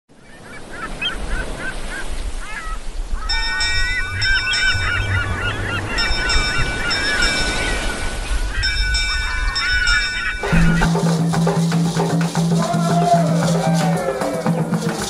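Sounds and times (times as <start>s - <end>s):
birds honking cries: 0.2s - 12.1s
steady ringing tones: 3.3s - 7.9s.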